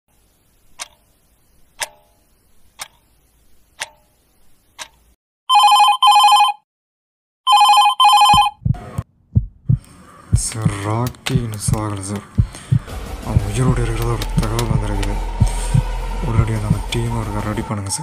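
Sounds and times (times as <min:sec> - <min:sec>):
clock ticking: 0:00.7 - 0:01.1, 0:01.8 - 0:02.2, 0:02.8 - 0:03.0, 0:03.8 - 0:04.1, 0:04.8 - 0:05.0, 0:09.4 - 0:14.8
telephone bell ringing: 0:05.5 - 0:06.6, 0:07.5 - 0:08.6
low thuds: 0:08.5 - 0:17.7.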